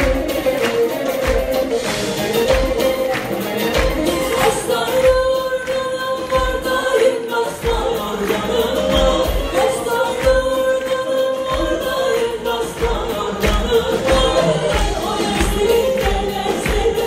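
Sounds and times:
live band and singer: 0.0s - 17.0s
steady drum beat: 0.0s - 17.0s.

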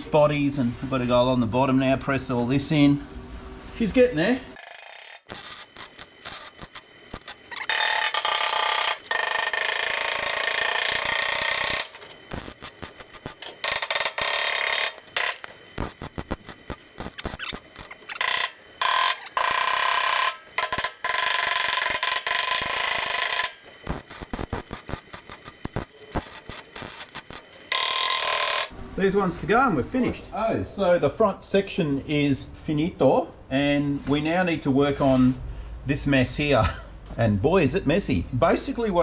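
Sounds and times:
welder crackling: 4.6s - 28.8s.

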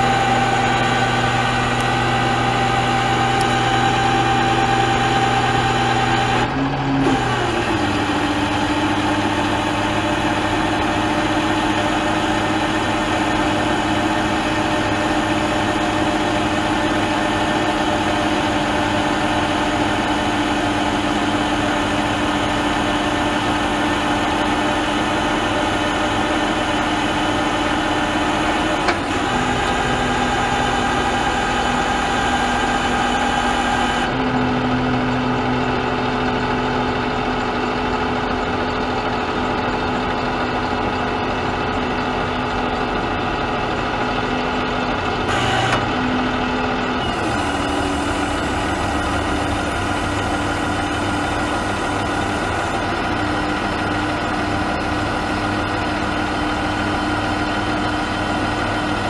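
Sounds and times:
engine running steadily: 0.0s - 59.0s.

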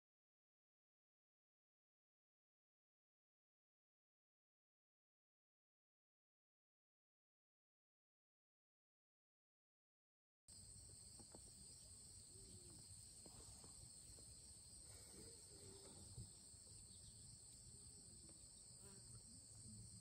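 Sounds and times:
insects trilling: 10.5s - 20.0s.

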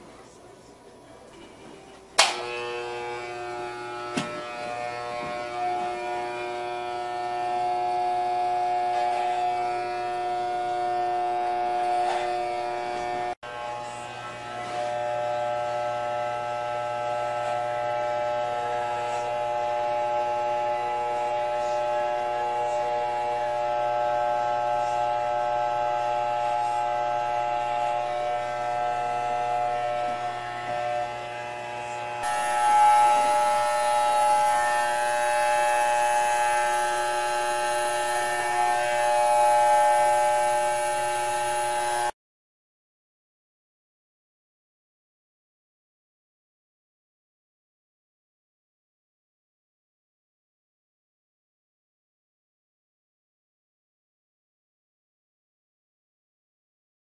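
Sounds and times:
electric hair clippers buzzing: 2.2s - 42.2s.

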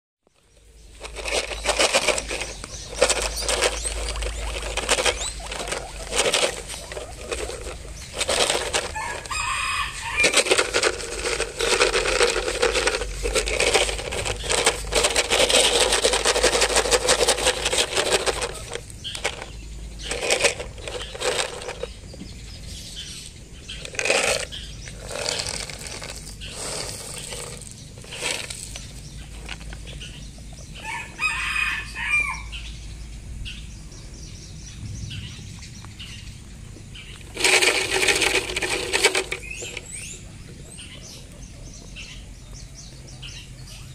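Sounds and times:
dense crackling and rustling: 0.8s - 22.1s, 23.8s - 30.1s, 37.3s - 40.2s.

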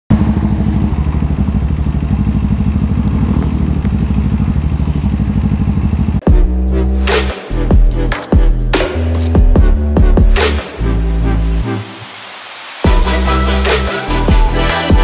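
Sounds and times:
motorcycle engine idling: 0.1s - 6.4s
electronic music with heavy beat: 6.2s - 15.0s.

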